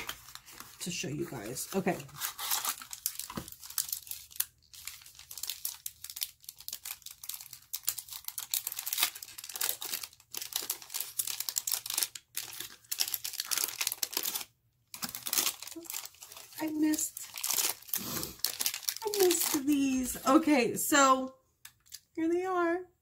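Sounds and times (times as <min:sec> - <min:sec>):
crinkly packaging crackling: 0:00.0 - 0:22.1.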